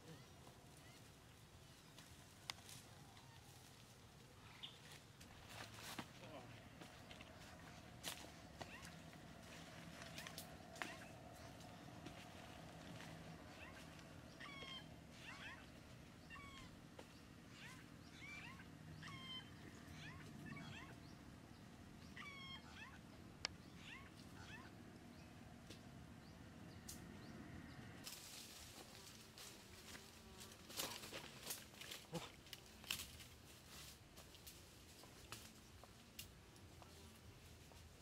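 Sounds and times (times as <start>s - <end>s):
rustle of plants: 0.2s - 15.4s, 28.0s - 38.0s
faint animal calls: 2.6s - 16.8s, 17.4s - 25.0s.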